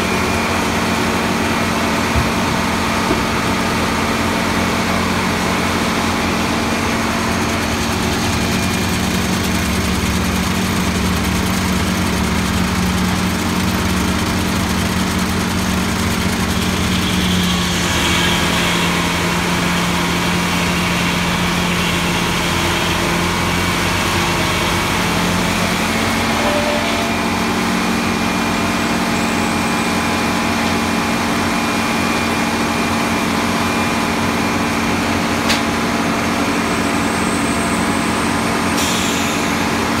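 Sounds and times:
sawmill engine humming: 0:00.0 - 0:40.0
higher mechanical tone: 0:25.6 - 0:40.0.

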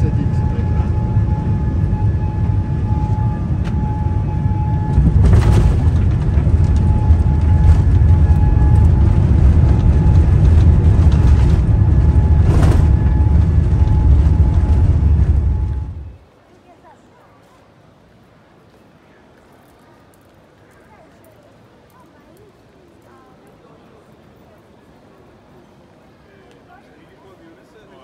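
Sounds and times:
aircraft engines rumbling: 0:00.0 - 0:16.2
wheels rolling on runway: 0:03.6 - 0:16.2.

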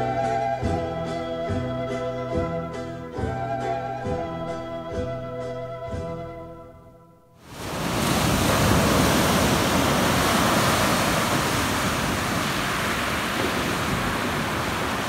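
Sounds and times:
waves breaking on gravel beach: 0:07.5 - 0:15.0.

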